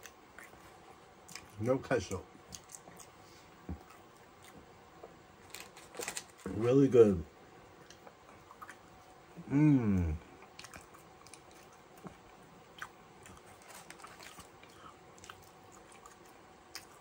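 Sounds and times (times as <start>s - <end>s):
person chewing food: 0.0s - 1.6s, 2.4s - 4.7s, 7.8s - 17.0s
person humming: 9.4s - 10.3s.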